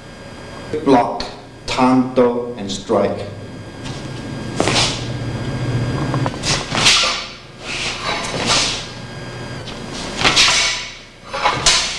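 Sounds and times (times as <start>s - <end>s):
swords whooshing through air: 6.4s - 8.9s, 10.1s - 11.9s.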